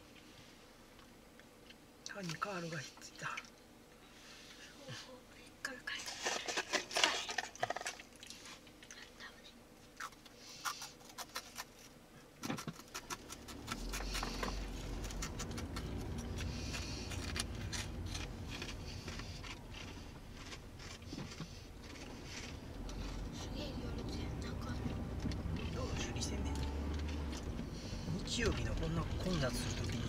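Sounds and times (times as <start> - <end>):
crunchy snacks being eaten: 9.9 - 23.0
car driving rumble: 13.2 - 30.0.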